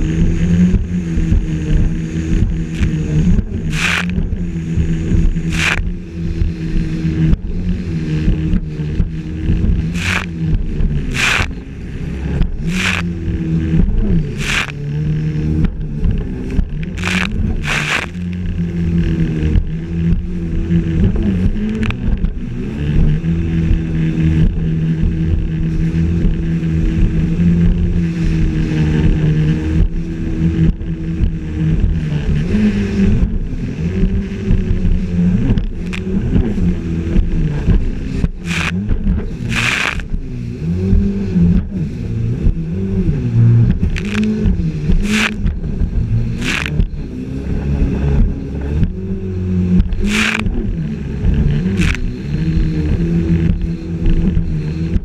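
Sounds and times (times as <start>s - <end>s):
jet ski engine running: 0.0s - 55.0s
water splashing: 2.3s - 19.6s.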